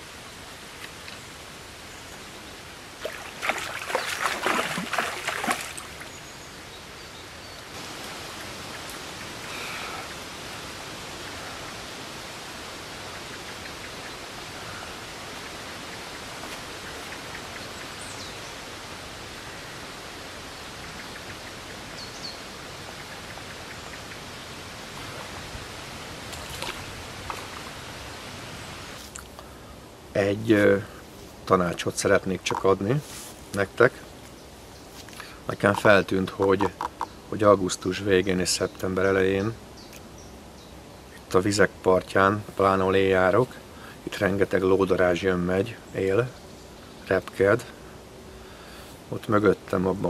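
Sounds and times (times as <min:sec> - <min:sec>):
moving water hiss: 0:00.0 - 0:50.0
fish thrashing and splashing: 0:03.0 - 0:06.1.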